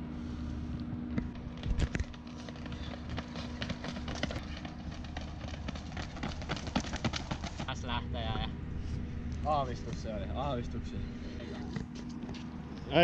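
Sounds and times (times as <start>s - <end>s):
steady low hum: 0.0s - 13.0s
running footsteps on brick: 1.2s - 7.9s.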